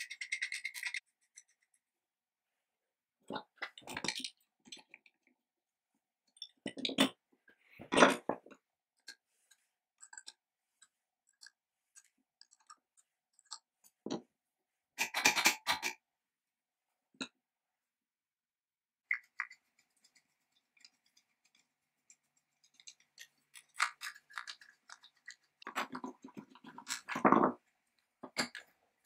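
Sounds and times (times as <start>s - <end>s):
steel parts clicking and clinking: 0.0s - 1.5s.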